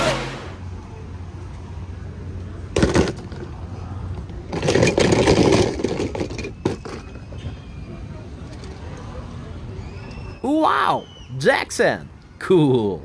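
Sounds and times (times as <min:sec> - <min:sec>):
race car engines running: 0:00.0 - 0:06.6.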